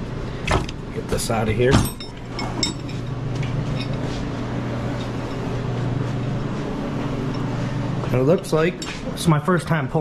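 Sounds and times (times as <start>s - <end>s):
space heater humming: 0.0s - 10.0s.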